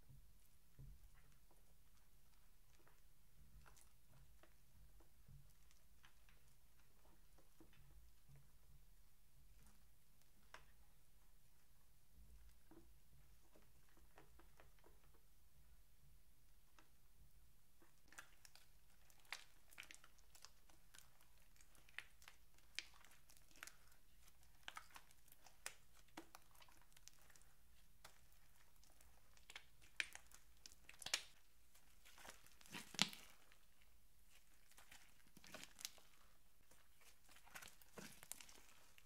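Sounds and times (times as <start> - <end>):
wet crackles and pops of slime: 0.7 - 8.5, 9.5 - 11.0, 12.4 - 15.3, 17.8 - 39.0
slime kneaded and stretched: 17.8 - 39.0.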